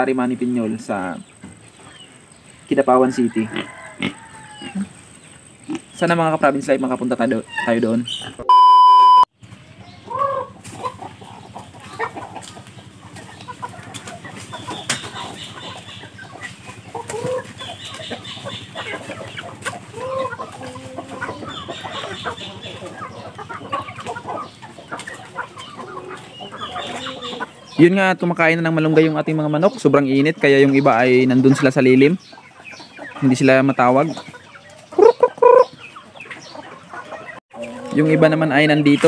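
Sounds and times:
chickens clucking: 0:00.0 - 0:08.5, 0:09.4 - 0:39.0
test-tone beep: 0:08.4 - 0:09.3.

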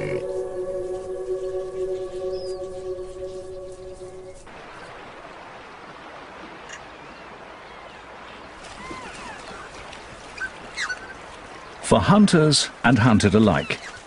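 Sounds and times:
held soundtrack chord: 0:00.0 - 0:04.5
rushing stream water: 0:00.0 - 0:14.0.

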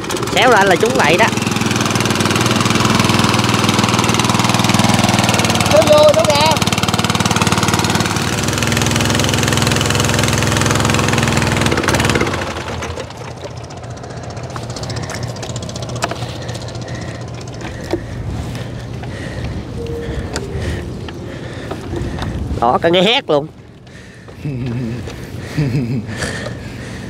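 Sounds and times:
boat engine running: 0:00.0 - 0:27.0.

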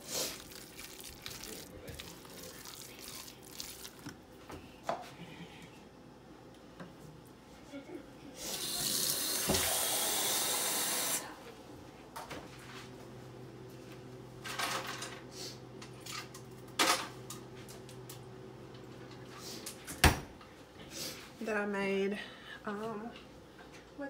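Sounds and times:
faucet running into metal sink: 0:08.5 - 0:11.2.

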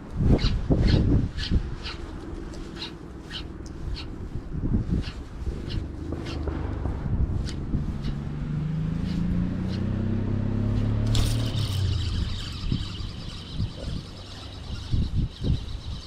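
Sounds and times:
low drone rising in pitch: 0:00.0 - 0:16.0
higher whirring: 0:00.6 - 0:16.0
spinning reel cranking: 0:11.1 - 0:16.0.

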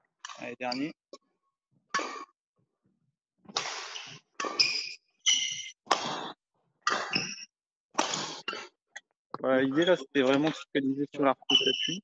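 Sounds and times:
shoes squeaking on court floor: 0:00.7 - 0:01.0, 0:03.7 - 0:06.3, 0:06.9 - 0:08.7, 0:11.5 - 0:12.0
racket hitting shuttlecock: 0:03.4 - 0:08.7.

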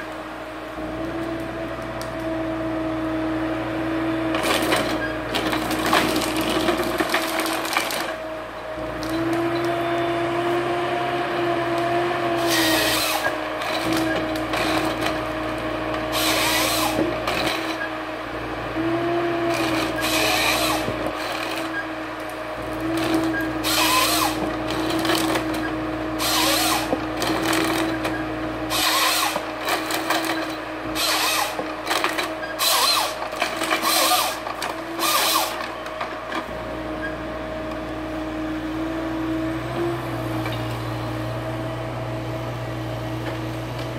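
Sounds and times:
engine and hydraulic drone: 0:00.0 - 0:43.9
harsh sawing and branch stripping: 0:11.7 - 0:17.9, 0:18.8 - 0:35.8.

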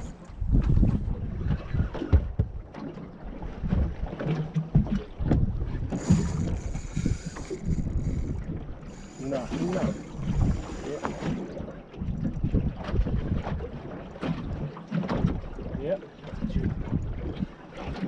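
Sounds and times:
wind buffeting microphone: 0:00.0 - 0:02.7, 0:04.7 - 0:13.7, 0:15.2 - 0:17.6.

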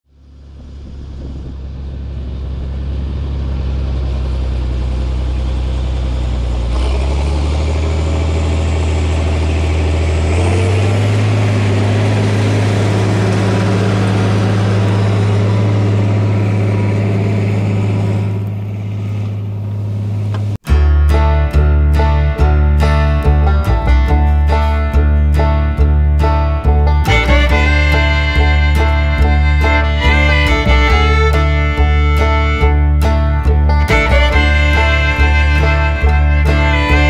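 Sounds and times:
tractor diesel engine droning: 0:00.0 - 0:37.0
plow discs cutting through soil: 0:00.3 - 0:20.6.

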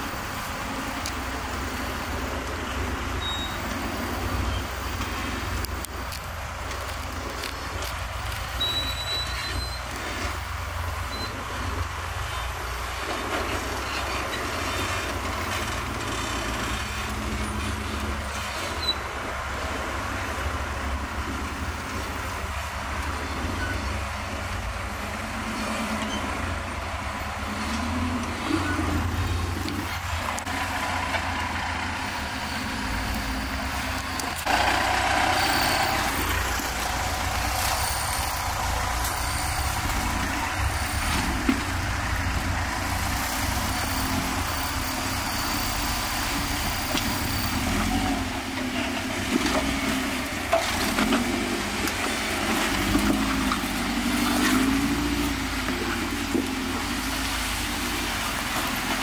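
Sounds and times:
off-road engines running low: 0:00.0 - 0:59.0
engine revving: 0:25.2 - 0:59.0.

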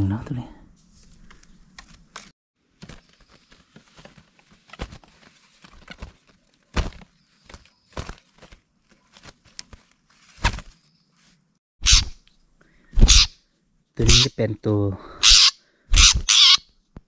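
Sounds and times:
bamboo and leaf litter rustling: 0:00.8 - 0:11.5.

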